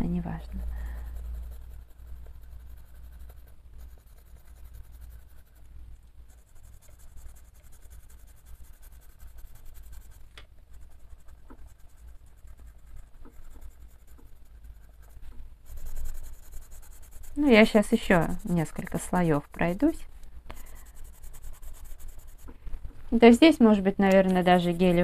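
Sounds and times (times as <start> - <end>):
colored pencil scratching on paper: 0.0 - 22.5, 23.2 - 25.0.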